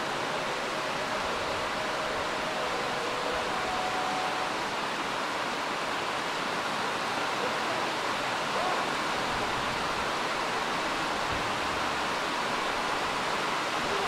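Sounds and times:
heavy rain pouring: 0:00.0 - 0:14.0.

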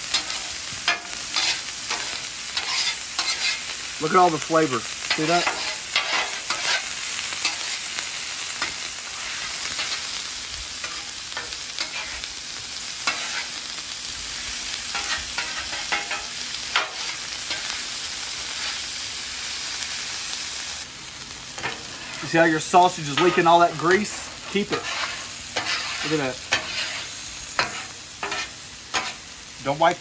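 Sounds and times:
food sizzling on a griddle: 0:00.0 - 0:30.0
metal spatula scraping and tapping: 0:00.1 - 0:03.6, 0:05.4 - 0:06.8, 0:24.6 - 0:29.2.

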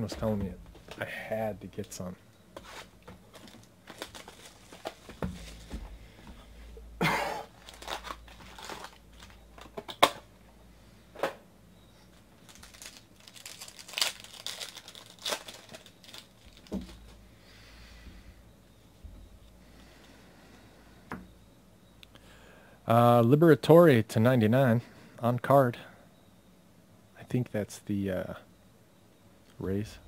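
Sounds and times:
foil wrappers tearing and crinkling: 0:02.7 - 0:05.6, 0:07.5 - 0:09.4, 0:12.4 - 0:17.0.

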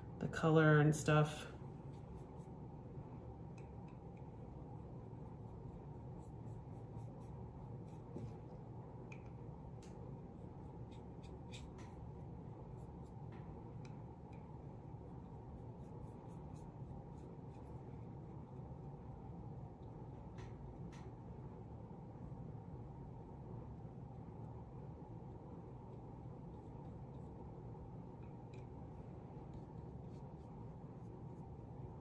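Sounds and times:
steady low hum: 0:00.0 - 0:32.0
paintbrush strokes: 0:01.6 - 0:09.3, 0:09.9 - 0:20.5, 0:25.8 - 0:32.0.

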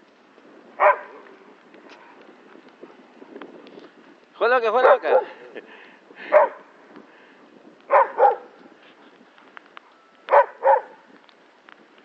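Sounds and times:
dog barking: 0:00.8 - 0:01.2, 0:04.8 - 0:05.4, 0:06.3 - 0:06.6, 0:07.9 - 0:08.5, 0:10.3 - 0:11.0.

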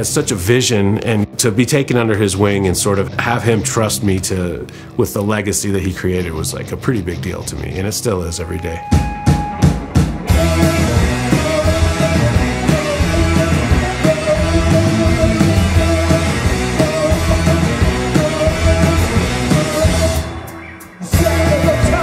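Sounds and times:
rock band playing: 0:08.7 - 0:22.0
drum hits: 0:08.9 - 0:19.8.

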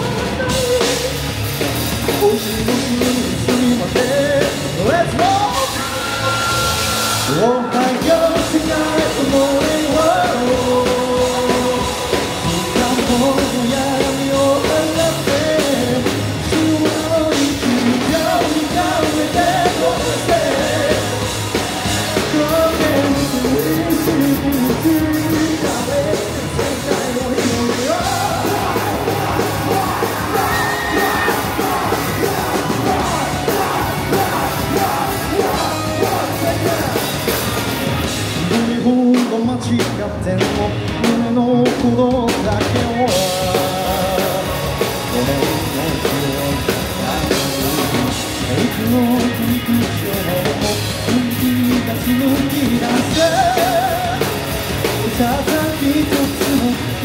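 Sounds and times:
lead singer singing: 0:00.0 - 0:57.0
live rock band playing: 0:00.0 - 0:57.0.

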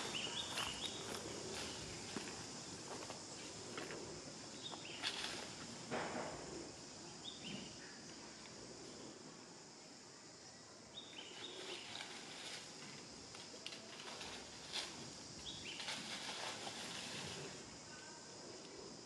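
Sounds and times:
insect hiss: 0:00.0 - 0:19.0
dry leaves rustling and clicking: 0:05.0 - 0:05.6, 0:11.6 - 0:17.6.

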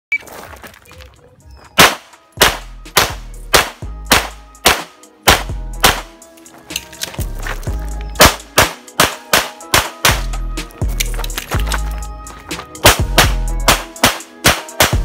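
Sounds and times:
pistol shots: 0:01.8 - 0:06.2, 0:08.2 - 0:10.3, 0:12.8 - 0:15.0.

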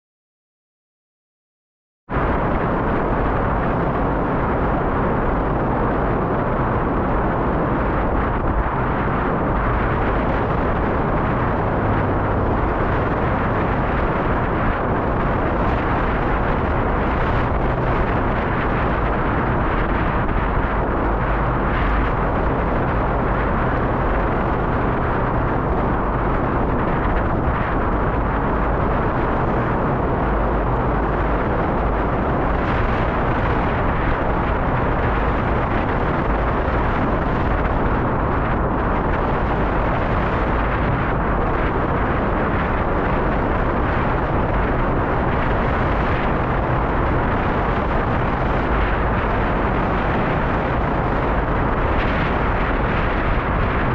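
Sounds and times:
wind buffeting microphone: 0:02.1 - 0:53.9.

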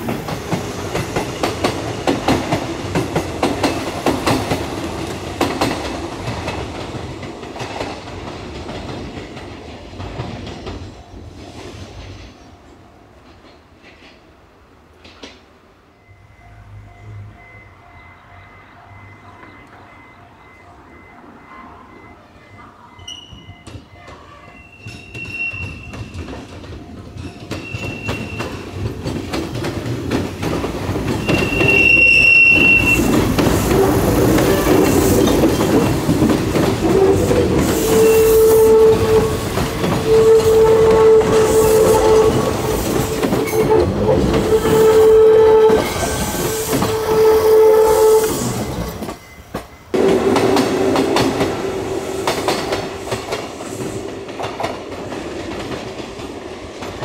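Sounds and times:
rail clatter: 0:00.0 - 0:12.4, 0:23.1 - 0:57.0
wheel squeal: 0:24.5 - 0:26.4, 0:27.5 - 0:28.8, 0:31.1 - 0:35.8, 0:36.8 - 0:49.5
electric train running: 0:25.1 - 0:56.1.

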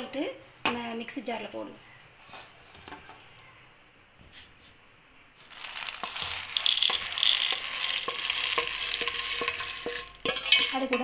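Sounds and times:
grains rattling on metal: 0:05.5 - 0:11.0.

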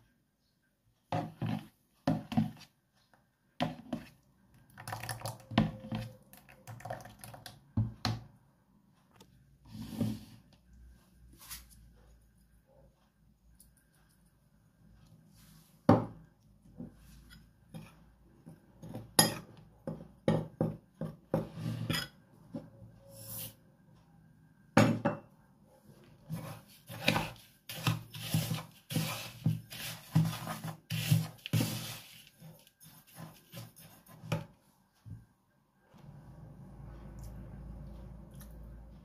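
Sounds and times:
metal spoon scraping plastic bowl: 0:01.2 - 0:02.8, 0:26.2 - 0:34.5.

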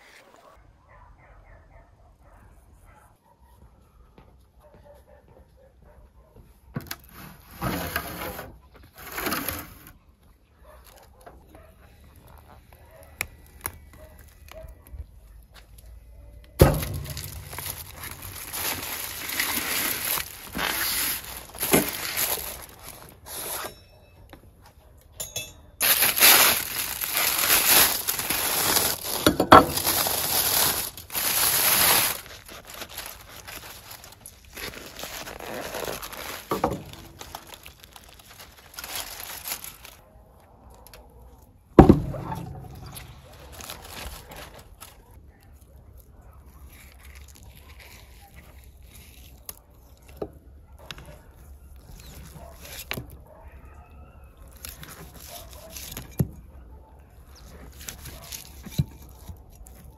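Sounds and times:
aluminium foil crinkling and tearing: 0:10.6 - 0:23.8, 0:25.8 - 0:53.3, 0:54.4 - 0:56.5, 0:57.2 - 0:59.9.

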